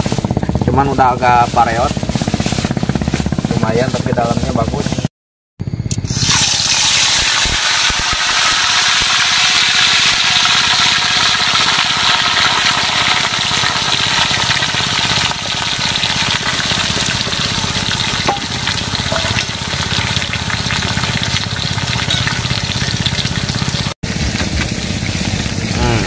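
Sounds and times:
fish sizzling in hot oil: 0:06.1 - 0:26.0.

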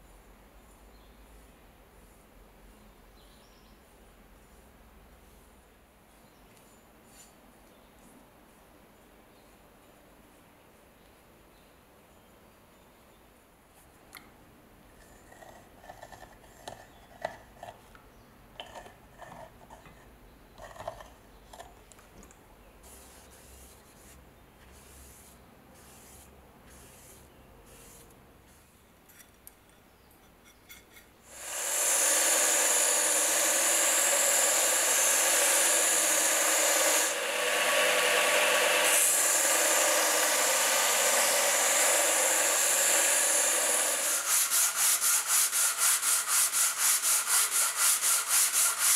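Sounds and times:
belt sander running: 0:31.3 - 0:48.9.

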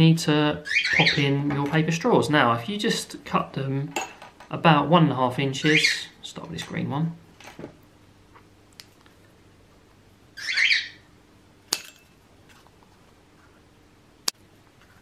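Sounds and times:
pieces dropping onto glass: 0:11.7 - 0:12.2.

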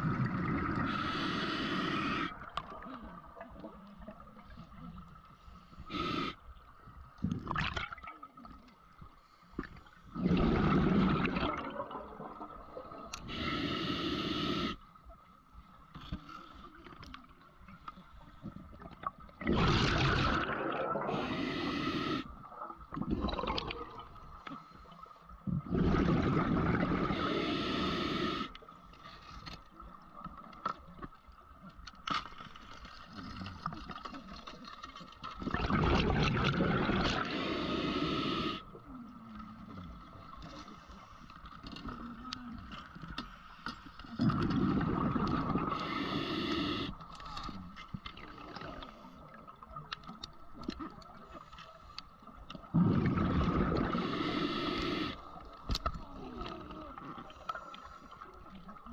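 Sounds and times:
exhaled bubbles from regulator: 0:00.0 - 0:03.6, 0:10.1 - 0:14.8, 0:19.0 - 0:24.2, 0:25.5 - 0:28.5, 0:35.4 - 0:38.7, 0:44.1 - 0:46.9, 0:52.7 - 0:55.4
faint crackling clicks: 0:13.0 - 0:13.3, 0:14.8 - 0:19.4, 0:28.5 - 0:35.7, 0:39.1 - 0:44.6, 0:46.9 - 0:52.7, 0:54.8 - 0:58.9.

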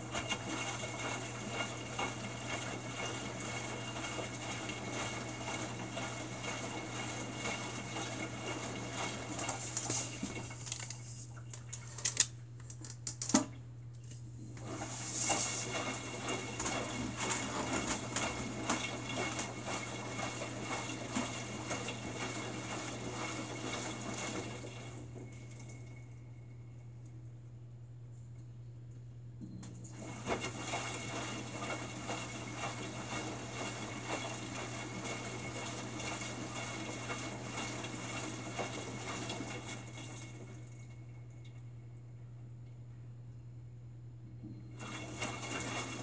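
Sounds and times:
water sloshing in drum: 0:00.0 - 0:11.8, 0:14.5 - 0:26.0, 0:29.9 - 0:41.5, 0:44.6 - 0:46.0
washing machine drum tumbling: 0:14.5 - 0:25.6, 0:29.9 - 0:40.5, 0:44.7 - 0:46.0.

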